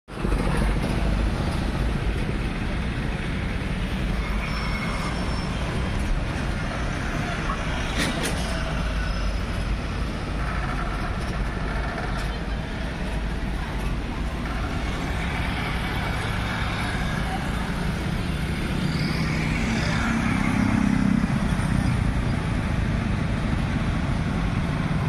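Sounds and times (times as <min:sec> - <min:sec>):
passing vehicles rumble: 0:00.1 - 0:25.0.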